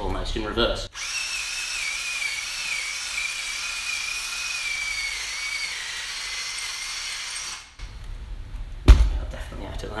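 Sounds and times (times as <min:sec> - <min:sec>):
cordless drill whining: 0:01.0 - 0:07.8.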